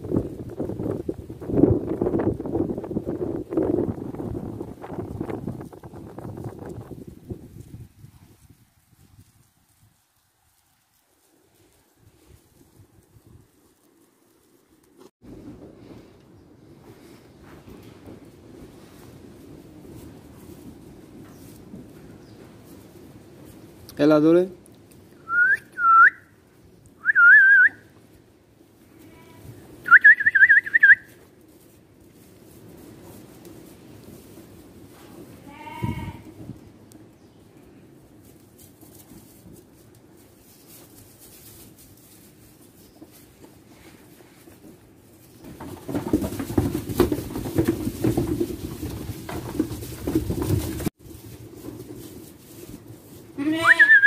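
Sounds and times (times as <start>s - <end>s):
rustling and knocking: 11.7s - 23.8s, 38.1s - 53.4s
person whistling: 25.2s - 26.2s, 27.0s - 27.8s, 29.9s - 31.1s, 53.8s - 54.0s
sheep bleating: 35.4s - 36.3s, 53.4s - 54.0s.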